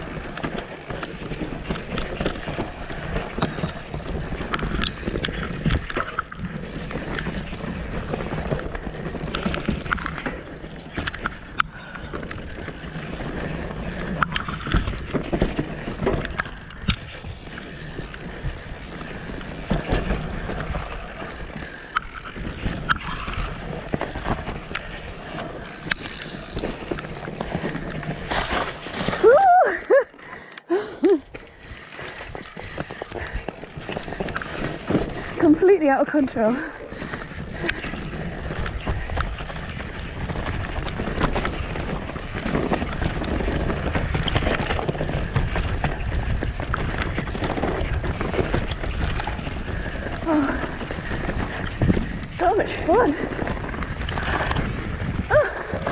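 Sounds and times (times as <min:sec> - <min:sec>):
bike rattling over roots: 0:00.0 - 0:55.9
tyres on dirt: 0:00.0 - 0:55.9
wind on microphone: 0:37.5 - 0:55.9.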